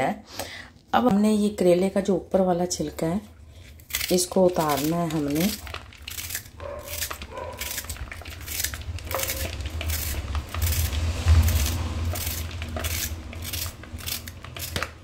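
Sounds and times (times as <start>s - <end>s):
knife scraping gourd skin: 3.5s - 15.0s.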